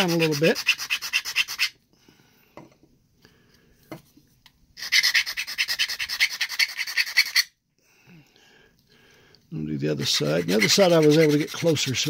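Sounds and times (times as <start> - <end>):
file rasping on plastic edge: 0.0 - 1.7, 4.8 - 7.5, 10.0 - 12.0.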